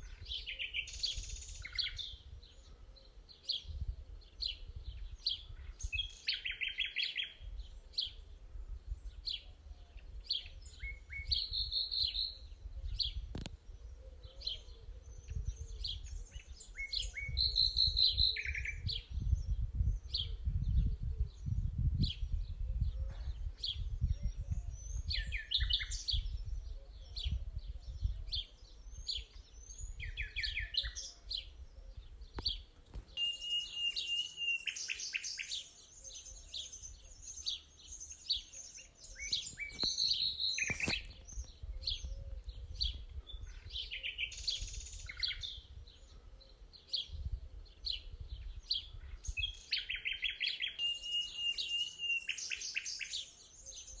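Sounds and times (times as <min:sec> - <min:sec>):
birds singing and chirping: 0:00.0 - 0:54.0
whistled bird note: 0:33.1 - 0:35.2.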